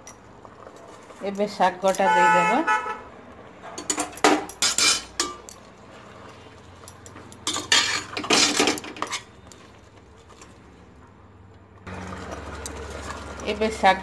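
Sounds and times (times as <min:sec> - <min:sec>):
metal spoon scraping a pot: 0:03.7 - 0:06.5, 0:07.4 - 0:10.5.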